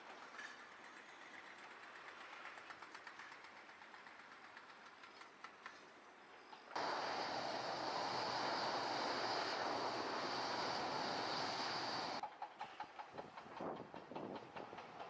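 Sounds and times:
turboprop engines roaring with whine: 6.8s - 12.2s.

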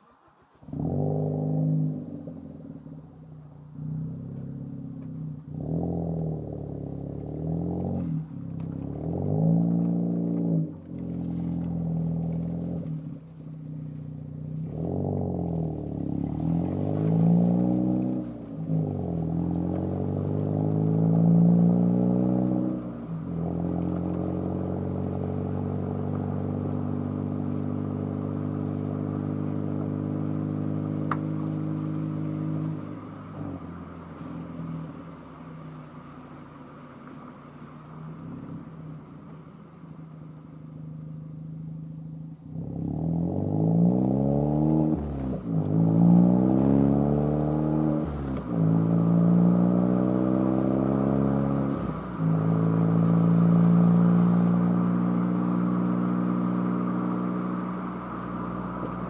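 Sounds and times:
car exhaust revving: 0.0s - 59.0s.

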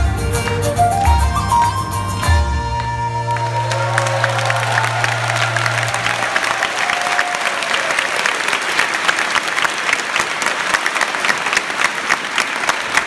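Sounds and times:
held instrument note: 0.0s - 5.8s
audience applauding: 0.0s - 13.0s.

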